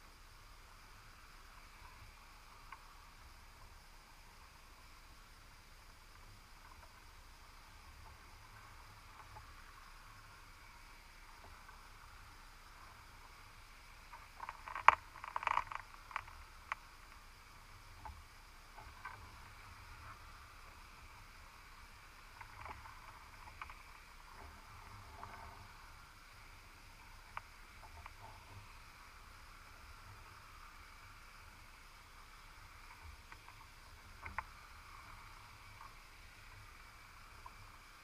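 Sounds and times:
faint steady hiss: 0:00.0 - 0:38.0
underwater clicks and knocks: 0:14.1 - 0:16.8.

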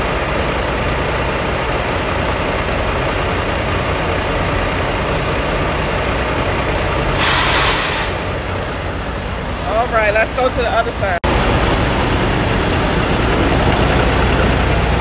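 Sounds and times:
diesel truck engine idling: 0:00.0 - 0:15.0
air brake hiss: 0:07.1 - 0:08.5.

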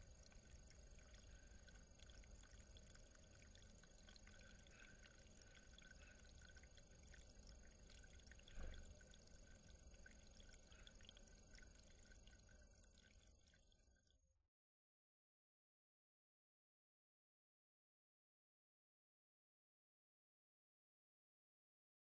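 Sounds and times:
water trickling over stone: 0:00.0 - 0:14.1.

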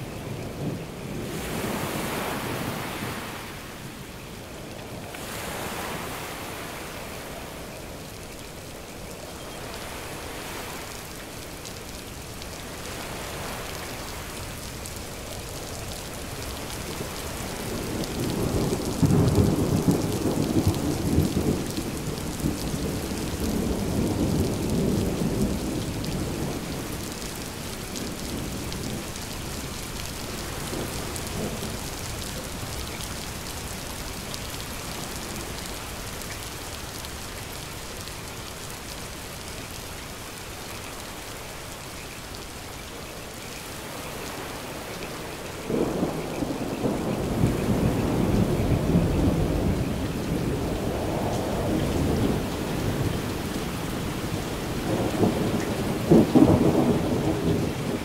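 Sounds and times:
steady rain: 0:00.0 - 0:58.0
rolling thunder: 0:45.7 - 0:58.0.

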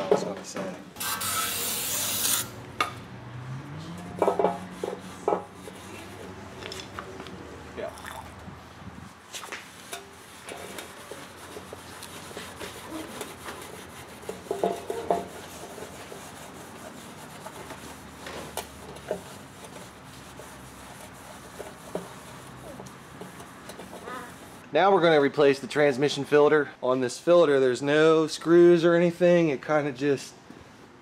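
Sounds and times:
rag wiping a metal pan: 0:04.2 - 0:06.4, 0:09.7 - 0:24.6.

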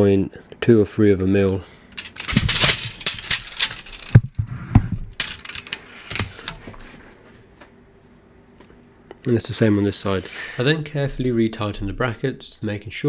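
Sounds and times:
tape measure clicks and rattle: 0:02.0 - 0:04.3, 0:05.1 - 0:06.6
tape measure retracting: 0:02.0 - 0:04.3.

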